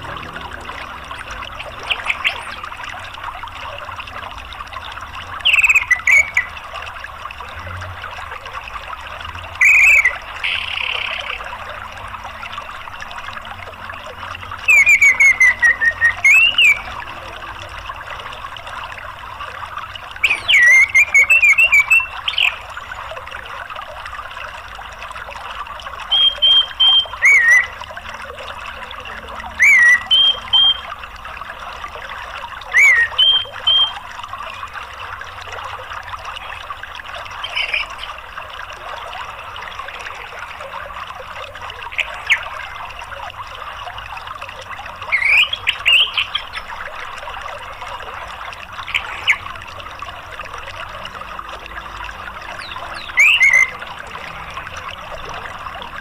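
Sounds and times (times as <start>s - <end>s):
flowing water: 0.0s - 56.0s
bird chirping: 20.2s - 22.6s, 29.6s - 30.9s, 32.7s - 34.0s, 52.6s - 53.8s.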